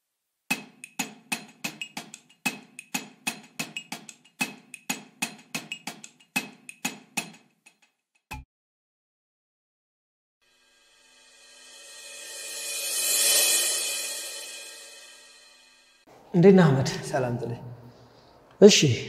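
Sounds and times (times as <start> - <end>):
wood-block percussive ticks: 0.5 - 8.4.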